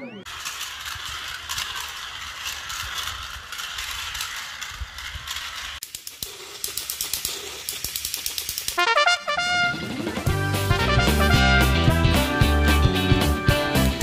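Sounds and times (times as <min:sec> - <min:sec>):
toy train clicking: 0:00.2 - 0:09.6
toy train gearbox whir and rattle: 0:00.3 - 0:09.1.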